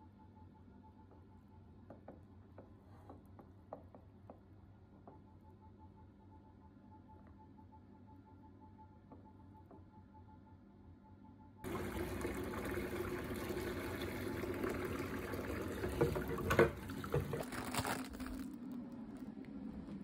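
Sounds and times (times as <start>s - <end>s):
tap water running into sink: 11.7s - 17.6s
dishes knocking: 15.8s - 17.4s.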